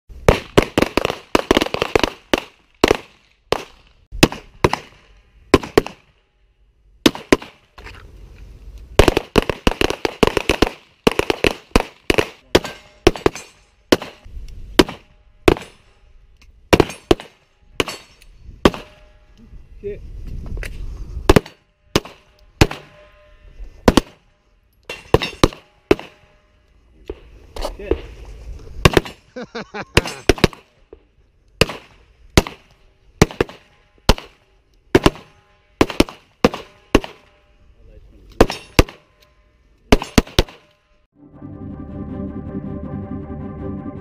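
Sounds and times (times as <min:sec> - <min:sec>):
pistol shots: 0:00.2 - 0:06.1, 0:07.0 - 0:07.6, 0:09.0 - 0:15.8, 0:16.7 - 0:18.0, 0:21.3 - 0:22.9, 0:23.8 - 0:24.2, 0:24.9 - 0:26.2, 0:28.8 - 0:29.2, 0:30.0 - 0:30.7, 0:31.6 - 0:37.3, 0:38.4 - 0:39.1, 0:39.9 - 0:40.7.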